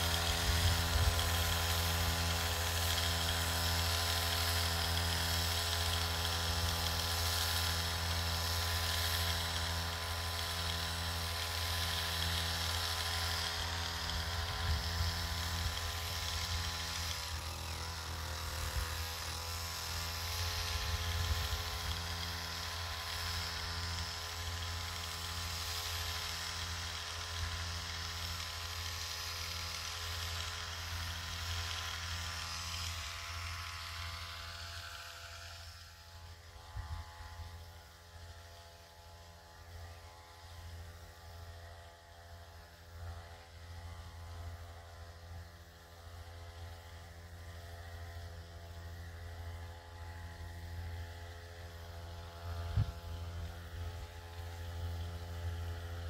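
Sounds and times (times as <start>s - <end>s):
small motor humming: 0.0s - 56.0s.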